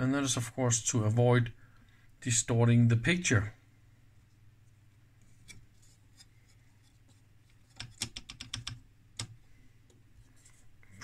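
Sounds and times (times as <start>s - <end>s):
clicks and taps on metal: 7.7s - 9.4s.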